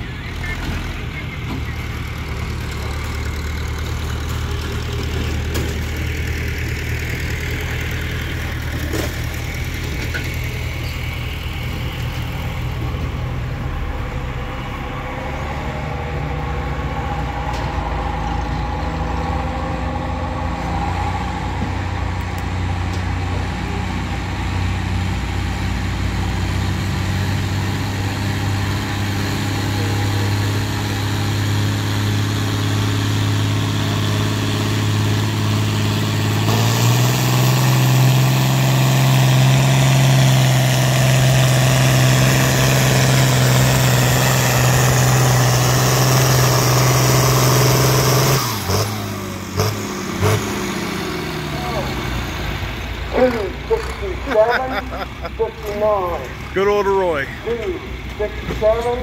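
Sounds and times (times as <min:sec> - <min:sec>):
tractor engine under load: 0:00.0 - 0:59.0.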